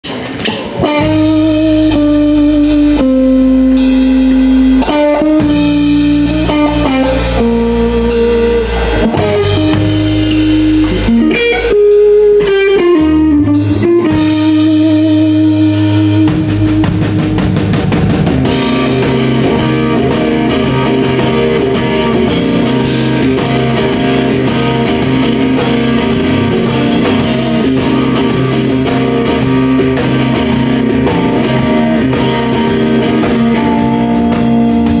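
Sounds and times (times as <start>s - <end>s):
drums: 0.0s - 35.0s
electric guitar lead notes: 0.1s - 35.0s.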